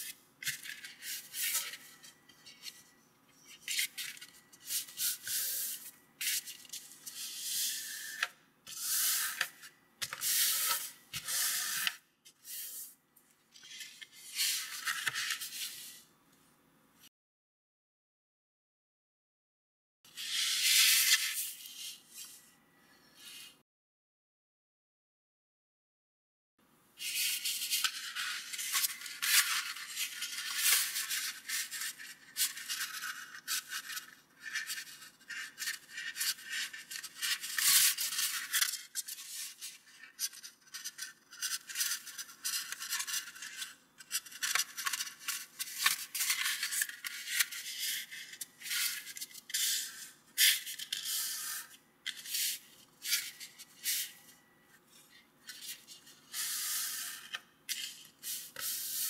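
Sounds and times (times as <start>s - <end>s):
paper rustling and crinkling: 27.3s - 49.8s.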